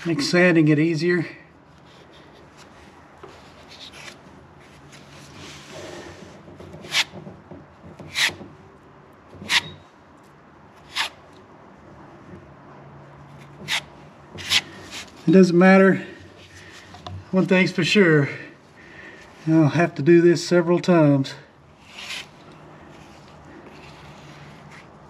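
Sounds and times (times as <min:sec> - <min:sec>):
soft rubbing: 0:01.8 - 0:06.4, 0:21.8 - 0:25.0
spreader scraping compound on fiberglass: 0:13.4 - 0:15.3, 0:21.8 - 0:25.0.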